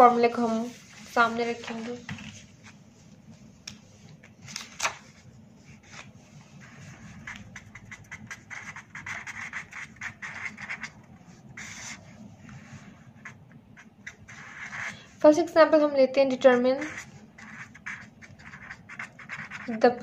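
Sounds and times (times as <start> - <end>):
marker scratching on paper: 5.6 - 20.0.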